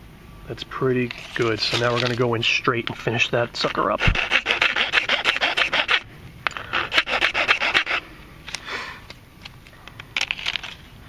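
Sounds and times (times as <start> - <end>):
file rasping on plastic pipe: 3.8 - 6.0, 6.6 - 8.0.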